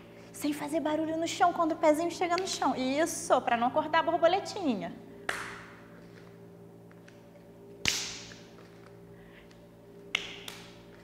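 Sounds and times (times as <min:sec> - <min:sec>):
hand claps: 0:05.3 - 0:05.7, 0:07.8 - 0:08.4, 0:10.1 - 0:10.8.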